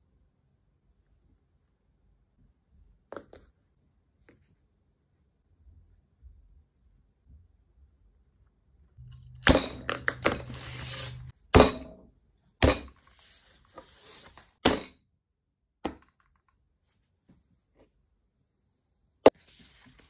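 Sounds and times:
pencils clicking and knocking: 9.0 - 11.3
paper rustling: 19.4 - 20.0.

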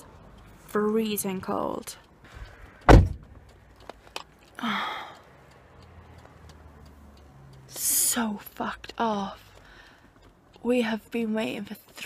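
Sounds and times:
faint ticks: 0.3 - 12.0
sharp loud thump: 2.9 - 3.4
woman sighing heavily: 4.6 - 5.2.

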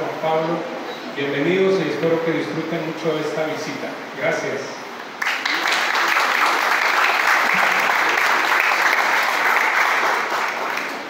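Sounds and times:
audience applauding: 5.2 - 11.0.

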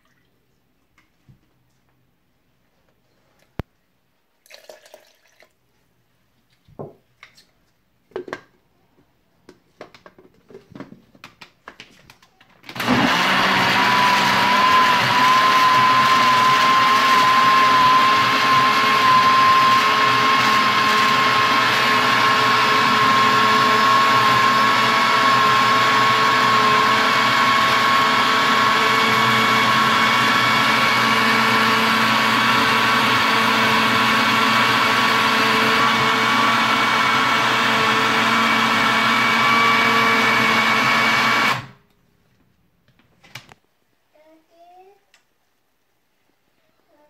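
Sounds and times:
blender motor whine: 12.7 - 41.8.

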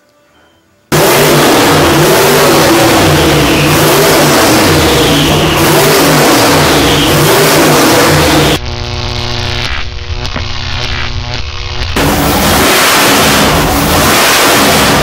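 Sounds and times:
racing engine revving: 0.9 - 8.6, 11.9 - 15.0
synthesized drone: 0.9 - 15.0.

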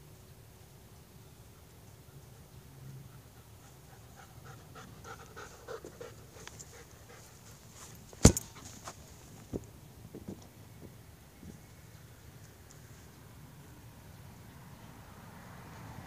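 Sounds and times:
dog panting: 3.0 - 8.8
ball kicked thud: 8.2 - 8.6.

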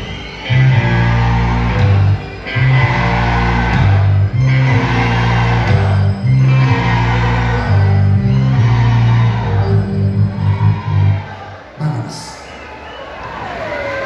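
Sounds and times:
electric guitar: 0.0 - 11.2
live rock band playing: 0.0 - 11.2
sustained bass notes: 0.0 - 11.5.

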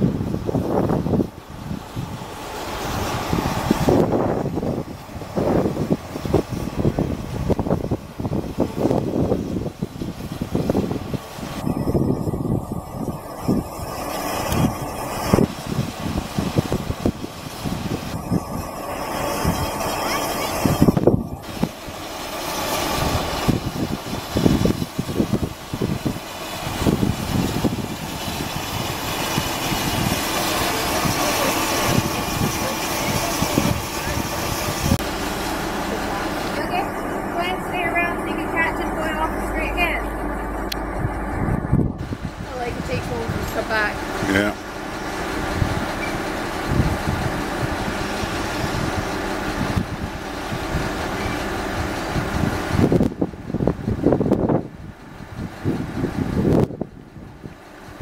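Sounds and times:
locomotive low thumps: 0.0 - 58.0
wind buffeting microphone: 0.0 - 58.0
steam locomotive hissing: 0.5 - 53.0.

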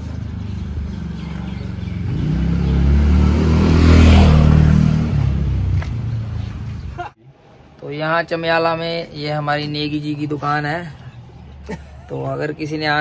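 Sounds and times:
vehicle driving past: 0.0 - 7.0.

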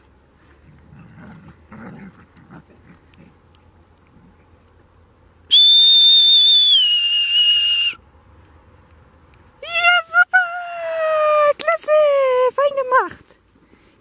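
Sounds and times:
dog whistle blast: 5.5 - 8.0.

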